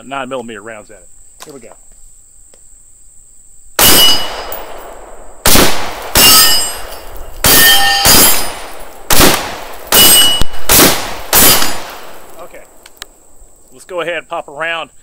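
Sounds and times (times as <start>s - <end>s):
steel targets ringing: 3.8s - 4.9s, 6.0s - 9.0s, 9.7s - 10.6s, 11.3s - 12.2s
rifle shots: 3.8s - 12.4s.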